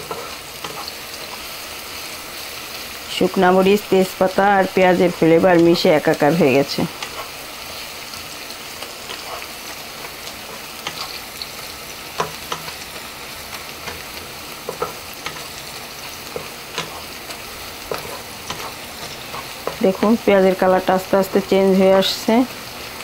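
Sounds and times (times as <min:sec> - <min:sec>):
onions sizzling in hot oil: 0:00.0 - 0:23.0
wooden spatula scraping pan: 0:09.0 - 0:09.6, 0:10.4 - 0:11.3, 0:13.8 - 0:20.3.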